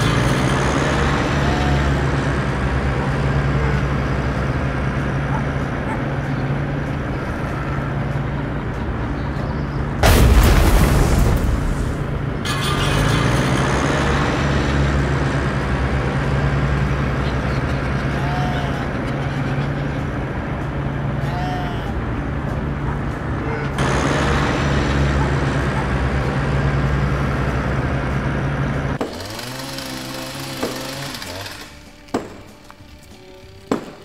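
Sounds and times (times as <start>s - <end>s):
tractor diesel engine droning: 0.0s - 34.0s
music: 6.1s - 10.1s, 18.8s - 23.8s, 30.9s - 34.0s.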